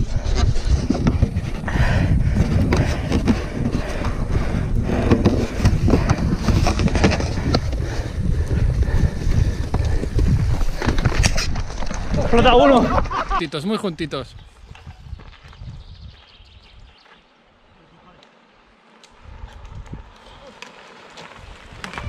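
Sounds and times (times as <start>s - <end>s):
bike rattling over rough trail: 0.0s - 13.4s, 18.3s - 22.0s
wind on microphone: 0.0s - 13.4s, 14.3s - 17.0s, 19.1s - 20.4s.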